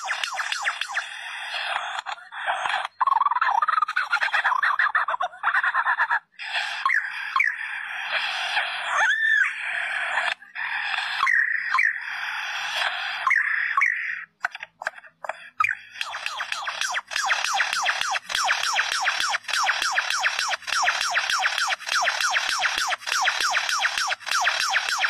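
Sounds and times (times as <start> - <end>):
lyrebird chattering and whistling: 0.0 - 25.0
rising-and-falling bird whistles: 6.8 - 7.7, 11.2 - 12.1, 13.2 - 14.1.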